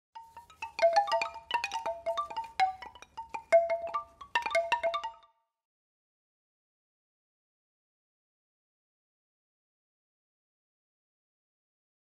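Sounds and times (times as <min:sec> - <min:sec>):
bell-like logo jingle: 0:00.2 - 0:05.2.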